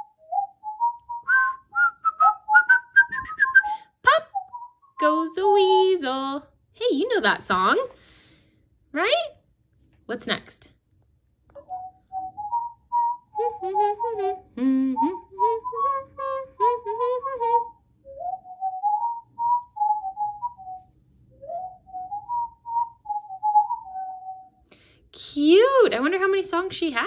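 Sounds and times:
toy whistled melody: 0.0s - 6.0s, 11.6s - 24.6s
lower second melody line: 13.4s - 17.8s.

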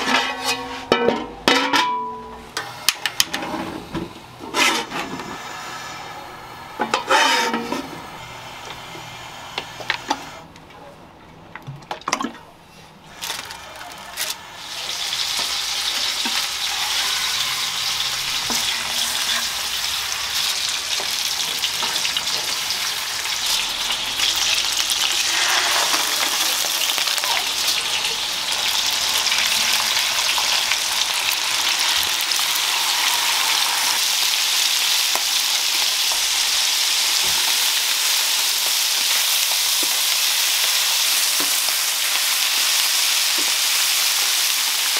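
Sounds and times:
fish sizzling in hot oil: 13.1s - 44.9s.

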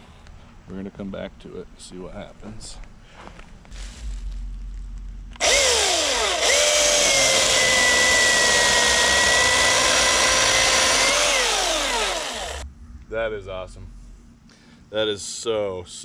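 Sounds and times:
electric chainsaw cutting log: 5.4s - 12.6s.

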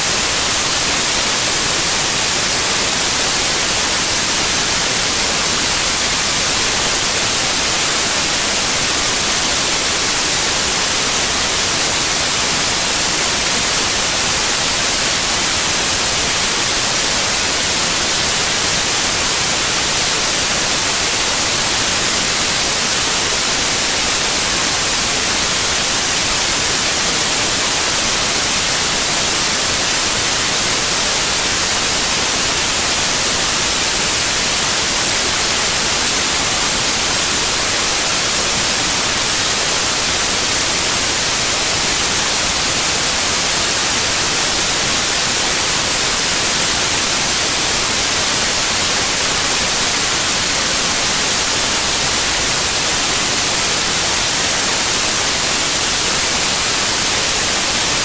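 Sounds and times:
loud electronic hiss: 0.0s - 58.0s.

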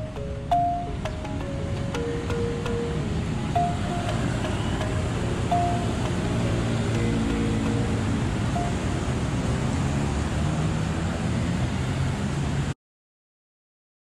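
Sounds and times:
city street traffic: 0.0s - 12.8s.

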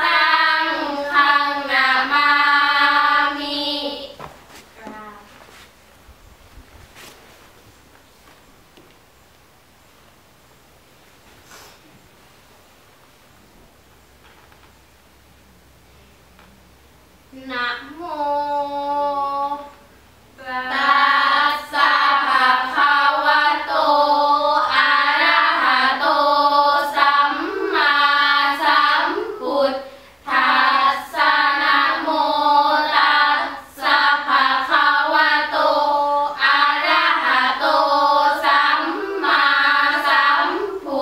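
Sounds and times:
girls chanting in unison: 0.0s - 4.2s, 17.4s - 19.8s, 20.4s - 41.0s.

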